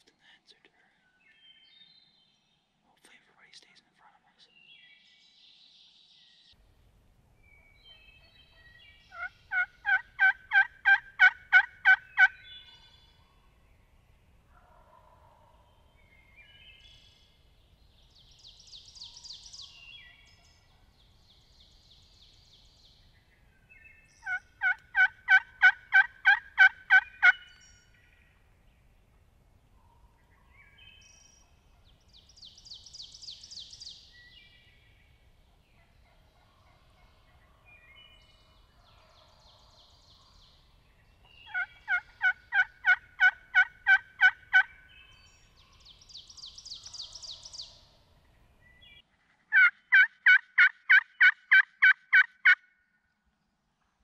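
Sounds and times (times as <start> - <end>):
wild turkey calling: 7.5 - 13.2, 14.5 - 16.1, 23.7 - 28.4, 35.5 - 39.6, 41.3 - 45.5, 49.5 - 52.8.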